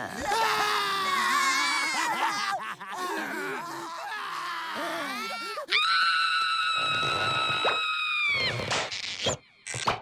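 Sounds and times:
cartoon voices whining: 0:00.0 - 0:06.0.

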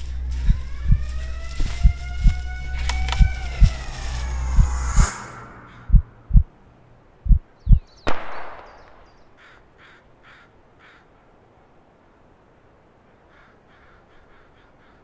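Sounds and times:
gunshot with echo: 0:08.1 - 0:09.2
crows cawing: 0:09.3 - 0:11.1, 0:13.3 - 0:15.0.

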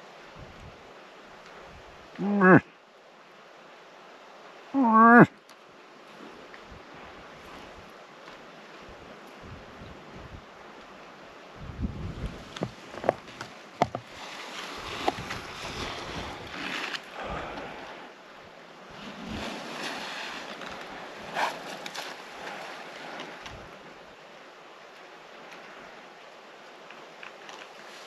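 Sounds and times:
wind gusting on microphone: 0:00.2 - 0:00.9, 0:08.8 - 0:24.1.

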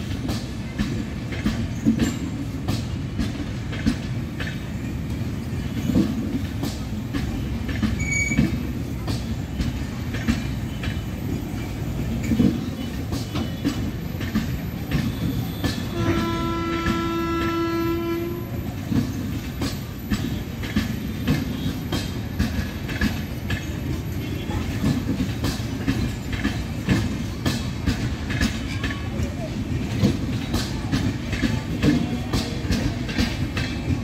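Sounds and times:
train rumble: 0:00.0 - 0:34.0
train wheels clicking over rail joints: 0:00.0 - 0:34.0
train horn: 0:15.6 - 0:18.6.

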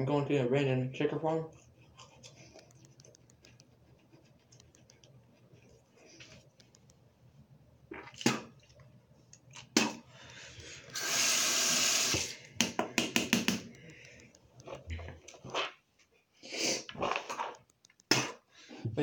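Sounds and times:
toothbrush scrubbing: 0:01.5 - 0:06.4
sink tap running: 0:10.6 - 0:14.1.

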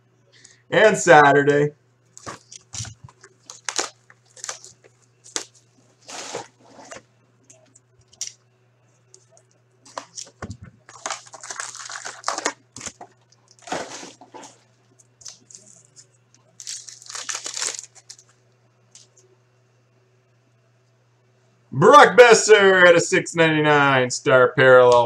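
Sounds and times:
packs dropped onto table: 0:02.2 - 0:04.7, 0:09.9 - 0:14.6
cardboard scraping: 0:02.2 - 0:07.0, 0:09.9 - 0:14.7
crinkling plastic wrap: 0:02.2 - 0:07.0, 0:09.9 - 0:18.4.

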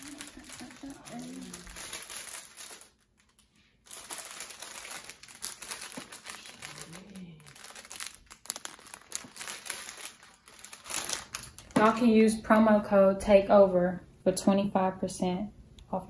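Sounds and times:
plastic bag crinkling: 0:00.0 - 0:12.2.

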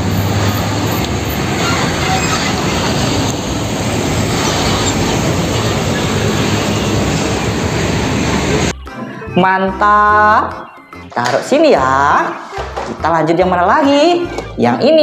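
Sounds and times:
truck diesel engine: 0:00.0 - 0:08.8.

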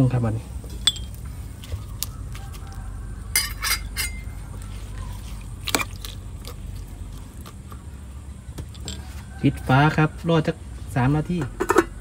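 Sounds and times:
utensil clinking against pot: 0:03.3 - 0:04.3.

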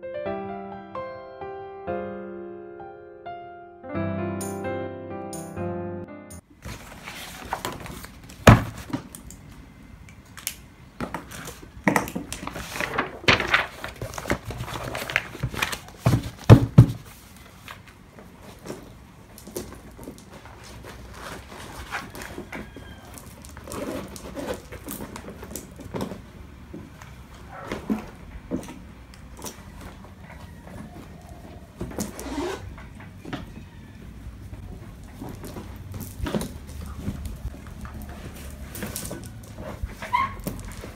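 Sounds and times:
pages riffling: 0:06.6 - 0:09.3, 0:11.2 - 0:26.2
papers rustling: 0:06.6 - 0:33.2, 0:34.5 - 0:40.9
books knocking on a desk: 0:08.4 - 0:09.0, 0:15.4 - 0:17.1.

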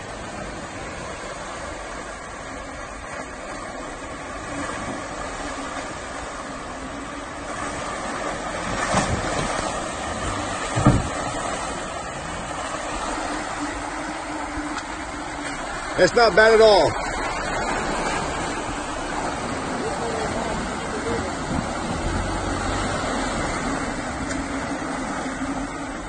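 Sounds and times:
car engine under throttle: 0:00.0 - 0:26.0
tyres splashing through mud: 0:00.0 - 0:26.0
sharp thumps: 0:10.6 - 0:11.4.

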